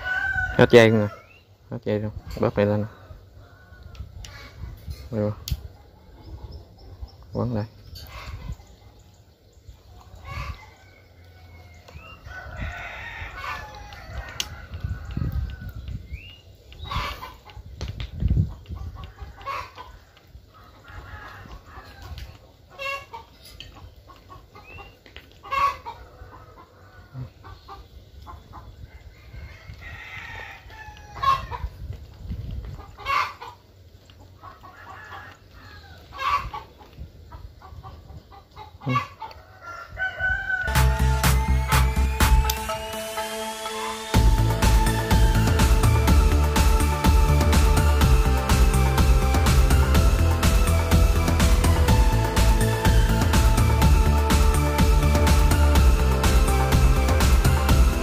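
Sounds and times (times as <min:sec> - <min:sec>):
rooster crowing: 0:00.0 - 0:01.3, 0:10.3 - 0:15.8, 0:39.3 - 0:58.0
chickens clucking: 0:01.9 - 0:29.8, 0:31.0 - 0:56.2.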